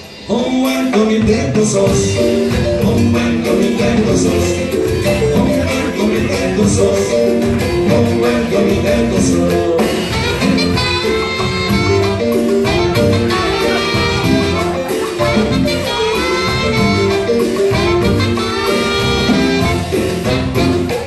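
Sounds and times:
congas: 0.0s - 21.0s
drum kit: 0.0s - 21.0s
keyboard: 0.0s - 21.0s
electric bass: 1.2s - 21.0s
saxophones playing melody: 9.7s - 21.0s.

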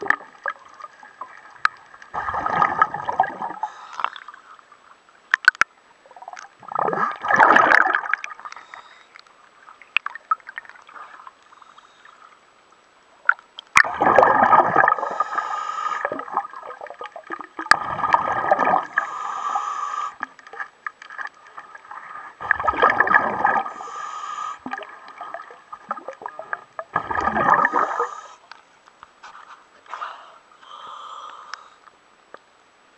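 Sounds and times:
faint ticks and drips: 0.0s - 2.2s, 3.1s - 7.0s, 7.8s - 13.9s, 18.5s - 30.0s, 30.6s - 32.6s
water sloshing against a hull: 20.2s - 24.0s.

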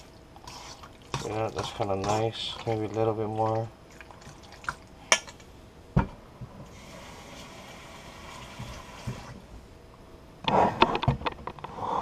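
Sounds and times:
tap running water into bowl: 8.3s - 9.3s.

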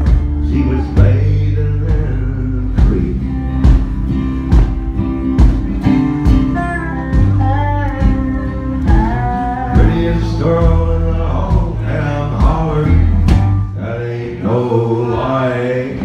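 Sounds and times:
man singing country ballad: 0.0s - 3.8s, 9.1s - 16.0s
acoustic guitar strumming: 0.0s - 16.0s.

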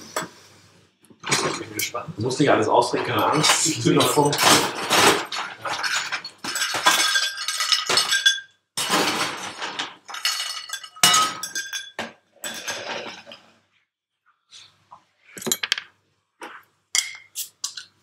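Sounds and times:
ice clinking against glass: 5.3s - 8.6s, 10.1s - 12.8s.

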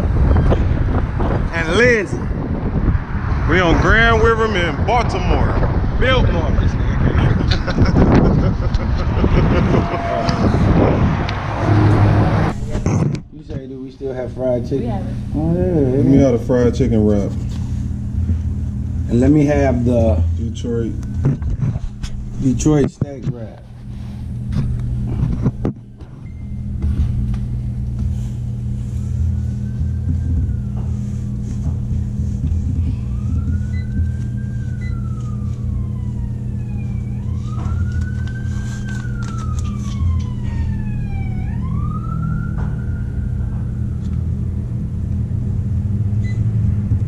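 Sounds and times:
steady low hum: 0.0s - 47.0s
siren wailing: 8.8s - 12.8s, 28.5s - 46.5s.

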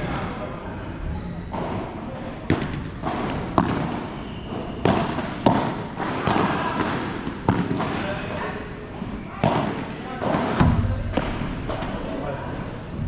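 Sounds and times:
padel ball struck by rackets: 2.5s - 4.0s, 4.8s - 8.0s
ball bouncing on court: 2.5s - 8.0s.

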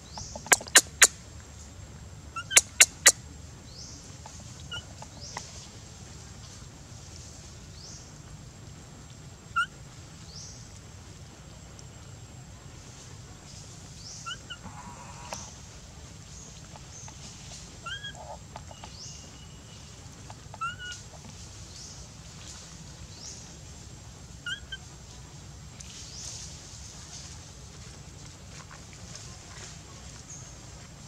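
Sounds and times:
baby macaque coo calls: 17.8s - 18.4s, 20.6s - 21.0s.

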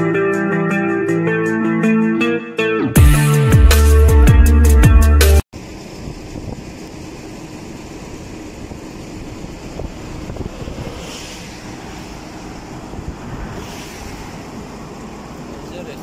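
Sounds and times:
music: 0.0s - 5.4s
asphalt paver engine and machinery: 5.6s - 16.0s.

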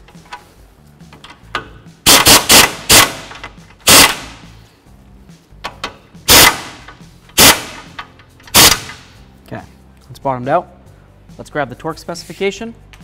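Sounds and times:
impact wrench hammering: 1.5s - 4.5s, 5.6s - 9.1s.

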